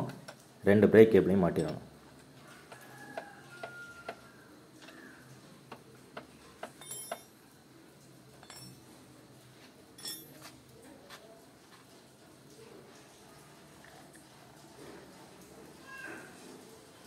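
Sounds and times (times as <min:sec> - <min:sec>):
ringing metal clinks: 0:06.8 - 0:07.4, 0:08.4 - 0:08.9, 0:10.0 - 0:10.5.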